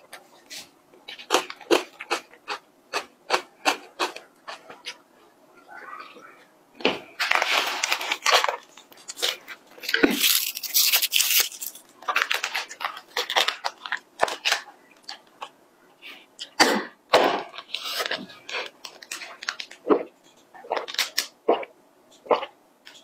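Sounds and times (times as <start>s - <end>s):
plastic bag crinkling: 7.2s - 15.2s, 17.6s - 19.9s.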